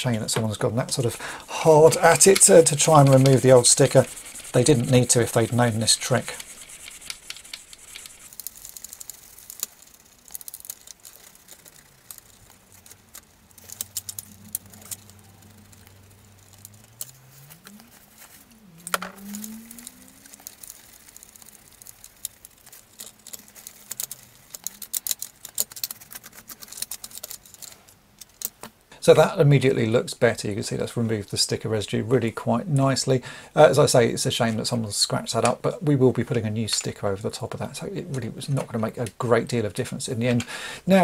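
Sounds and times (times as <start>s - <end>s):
fingertips scratching plastic: 0.4s - 28.7s
cloth rubbing on plastic: 0.8s - 9.3s.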